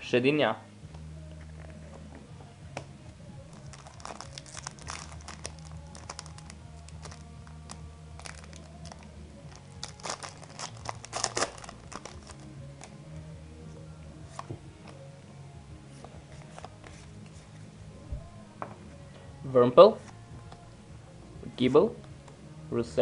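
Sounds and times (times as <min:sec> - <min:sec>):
foil wrapper crinkling and tearing: 0:03.5 - 0:12.5.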